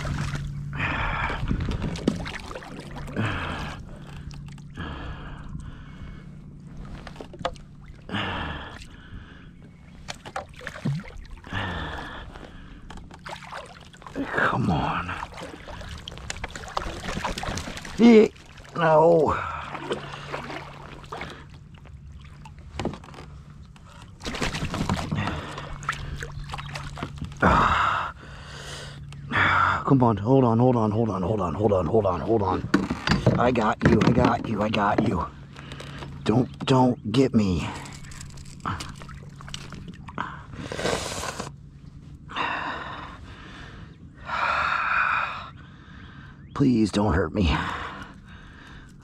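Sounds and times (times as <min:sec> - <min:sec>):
water splashing: 0:00.0 - 0:00.6, 0:01.3 - 0:04.8, 0:10.0 - 0:12.2, 0:13.1 - 0:23.2, 0:23.9 - 0:27.4
man breathing heavily: 0:00.6 - 0:02.0, 0:03.1 - 0:06.9, 0:08.0 - 0:10.0, 0:11.4 - 0:13.0, 0:27.4 - 0:29.9, 0:42.2 - 0:46.4, 0:47.5 - 0:49.0.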